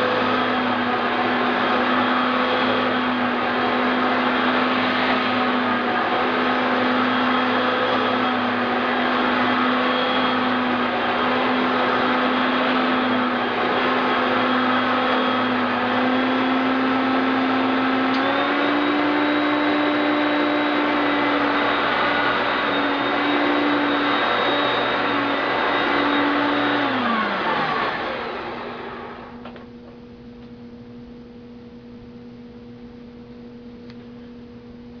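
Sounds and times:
vacuum cleaner running: 0.0s - 35.0s
faint steady hum: 29.4s - 35.0s.

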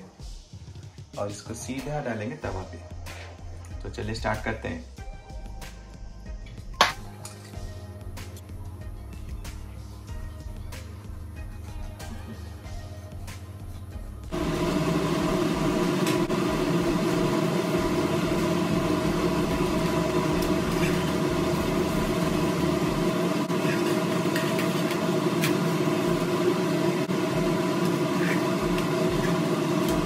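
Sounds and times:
mechanical motor hum: 11.9s - 30.0s.

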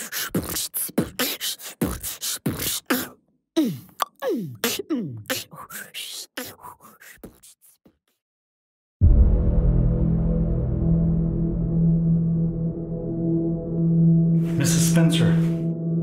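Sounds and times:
beatboxing: 0.0s - 8.2s.

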